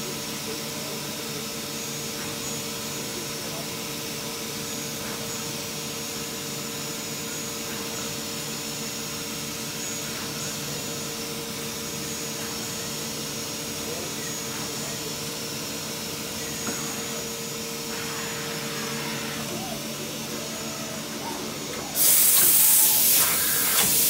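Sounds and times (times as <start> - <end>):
idle machine humming: 9.5 - 24.0.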